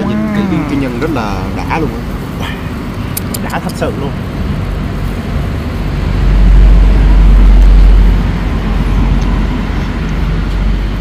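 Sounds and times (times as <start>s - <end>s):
loud low rumble: 4.1s - 11.0s.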